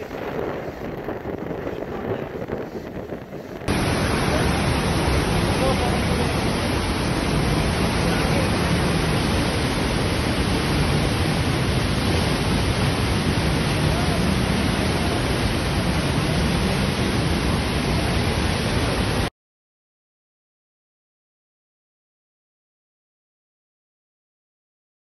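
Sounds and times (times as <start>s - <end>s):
rush of falling water: 0.0s - 19.3s.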